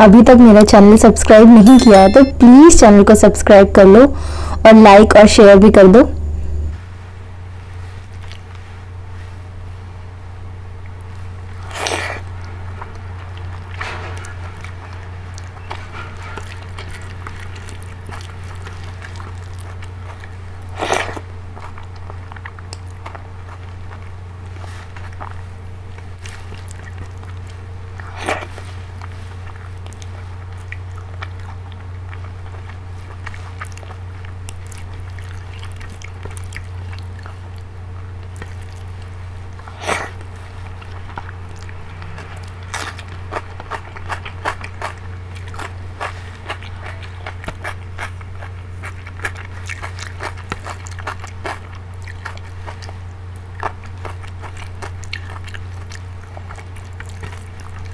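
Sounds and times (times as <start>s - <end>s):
steady low hum: 0.0s - 57.9s
chewing and wet mouth sounds: 7.6s - 9.6s, 10.6s - 57.9s
loud lip smacks: 39.6s - 40.2s.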